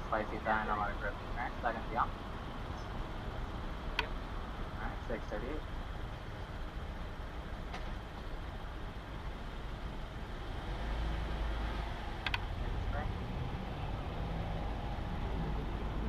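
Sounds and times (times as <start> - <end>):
sharp click: 12.2 - 12.4.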